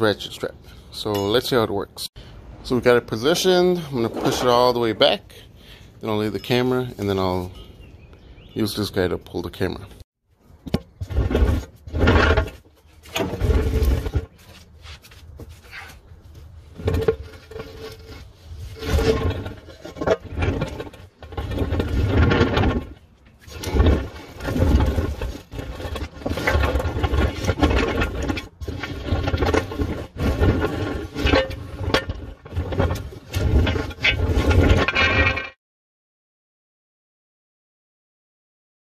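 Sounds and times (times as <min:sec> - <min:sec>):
wheeled dolly rolling and scraping: 0:02.6 - 0:05.4, 0:10.6 - 0:35.5
rattling and bumping: 0:10.6 - 0:15.8, 0:16.7 - 0:35.6.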